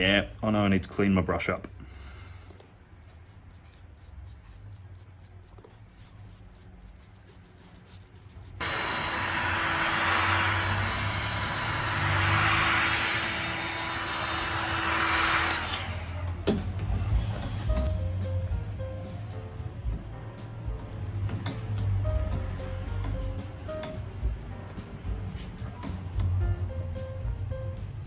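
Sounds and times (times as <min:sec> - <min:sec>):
low hum: 0:08.5 - 0:28.0
heat gun fan whining: 0:08.6 - 0:17.9.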